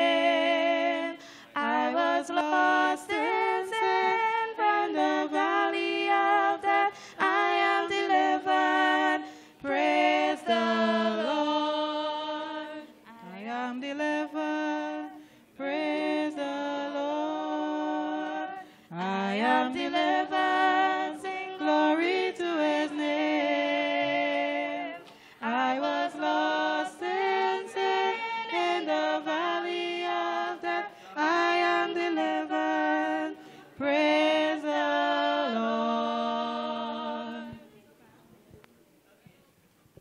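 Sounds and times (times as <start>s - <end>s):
person singing a hymn unaccompanied: 0.0s - 37.7s.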